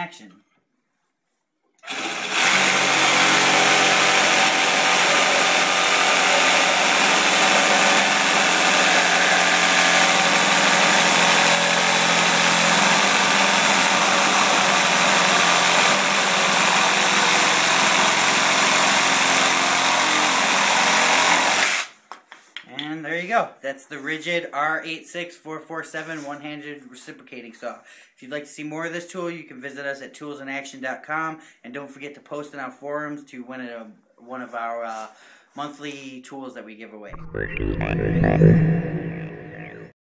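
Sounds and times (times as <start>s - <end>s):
reciprocating saw cutting wood: 1.8s - 21.9s.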